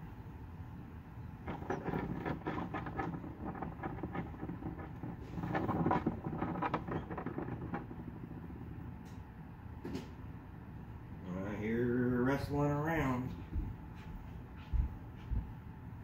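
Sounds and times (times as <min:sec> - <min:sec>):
steady low hum: 0:00.0 - 0:16.0
chick scratching on plastic: 0:01.5 - 0:08.6.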